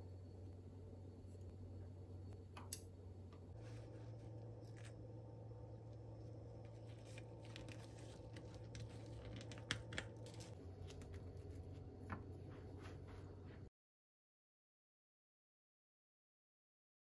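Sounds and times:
steady low hum: 0:00.0 - 0:13.7.

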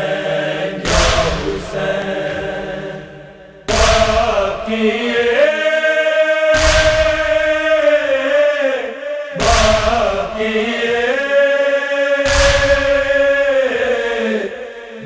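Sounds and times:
male chorus chanting lament: 0:00.0 - 0:15.0
echoing chest-beating strikes: 0:00.7 - 0:05.2, 0:06.6 - 0:08.0, 0:08.9 - 0:11.0, 0:12.3 - 0:13.5.

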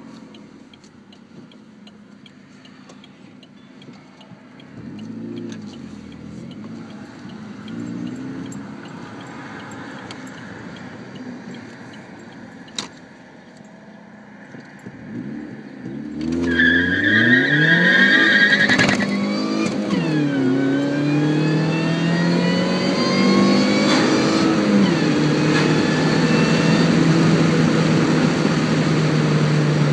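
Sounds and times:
car engine accelerating: 0:00.0 - 0:29.9.

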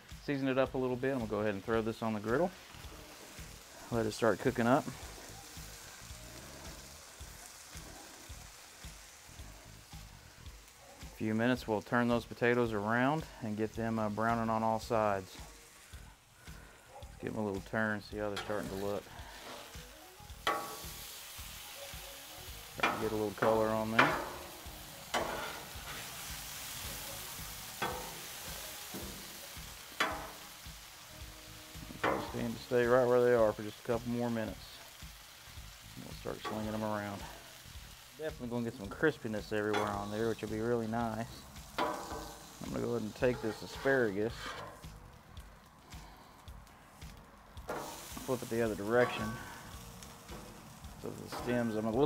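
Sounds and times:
vegetables sizzling on a griddle: 0:00.0 - 0:52.0
metal spatula scraping steel: 0:18.2 - 0:21.6, 0:22.8 - 0:26.8, 0:41.7 - 0:44.8, 0:47.7 - 0:51.9.

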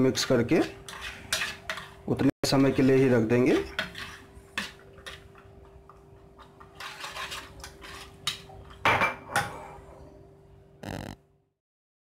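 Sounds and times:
wooden spoon stirring in saucepan: 0:00.0 - 0:08.8.

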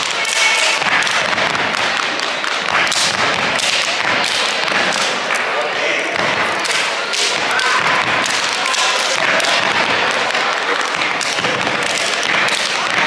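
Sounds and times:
hands slapping and clapping: 0:00.0 - 0:05.5, 0:06.2 - 0:13.0
voices shouting: 0:06.7 - 0:12.2.

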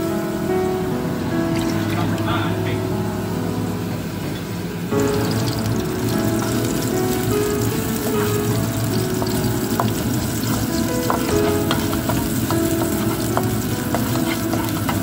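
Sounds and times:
garlic sizzling in hot oil: 0:04.9 - 0:15.0
spatula tapping and scraping pan: 0:08.0 - 0:15.0.

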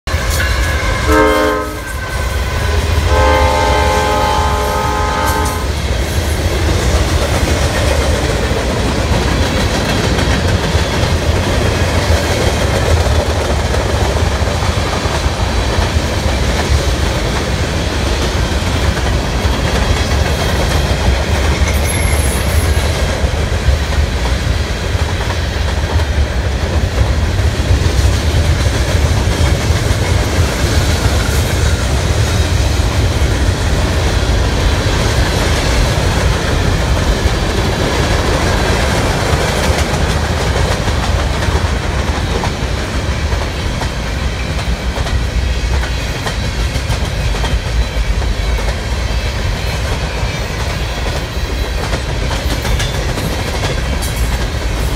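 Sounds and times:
train horn blasts: 0:00.1 - 0:05.8
freight cars rumbling and clacking: 0:05.7 - 0:54.9.

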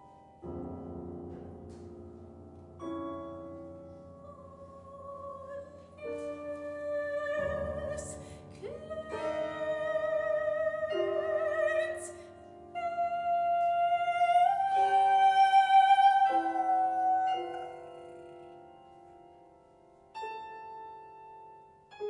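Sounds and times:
deep low piano sound: 0:00.0 - 0:12.8
grand piano: 0:00.0 - 0:22.0
soprano singing with vibrato: 0:04.1 - 0:18.0.

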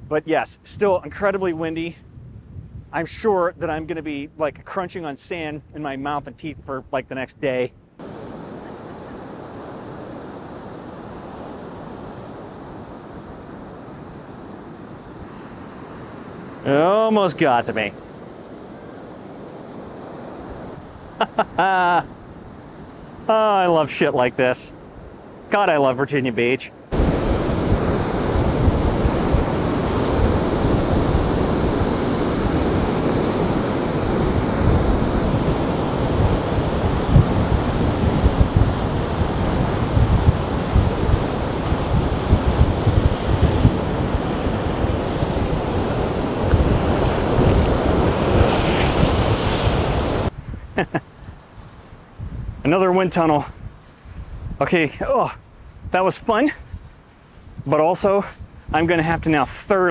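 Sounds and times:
wind on microphone: 0:00.0 - 0:04.6, 0:26.9 - 0:52.8, 0:53.4 - 0:59.9
surf breaking on beach: 0:08.0 - 0:51.0.

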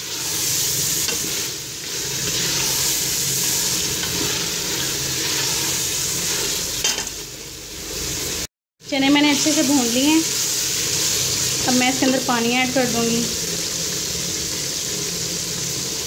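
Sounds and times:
spatula stirring: 0:00.0 - 0:07.0
chickpeas sizzling in oil: 0:00.0 - 0:16.0.

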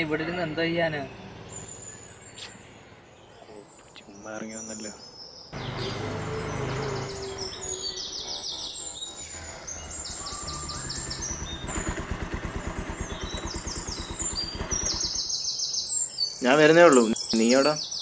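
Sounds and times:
motorcycle engine idling: 0:00.0 - 0:03.2, 0:05.6 - 0:15.6
birds chirping: 0:00.0 - 0:18.0.

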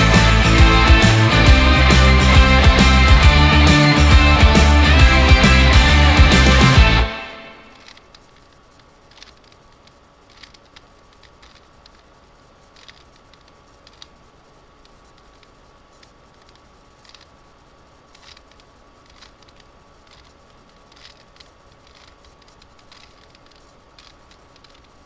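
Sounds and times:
faint steady hum: 0:00.0 - 0:25.0
puzzle cube clicking and scraping: 0:07.7 - 0:12.1, 0:12.7 - 0:14.2, 0:14.8 - 0:17.4, 0:18.1 - 0:25.0.

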